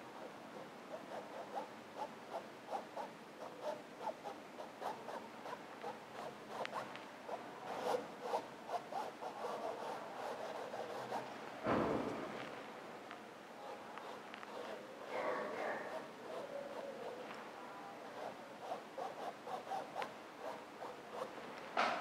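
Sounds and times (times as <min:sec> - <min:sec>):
paintbrush scratching on canvas: 0:00.2 - 0:11.4, 0:13.6 - 0:21.6.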